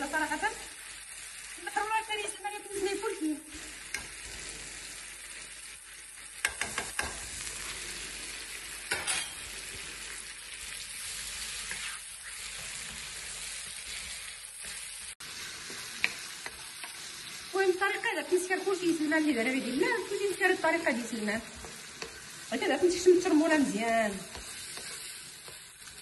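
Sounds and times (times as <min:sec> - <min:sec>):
sauce sizzling in frying pan: 0:00.0 - 0:26.0
spoons clicking against pan: 0:03.8 - 0:04.2, 0:06.4 - 0:07.2, 0:16.0 - 0:17.0
wooden spoon stirring: 0:23.4 - 0:26.0.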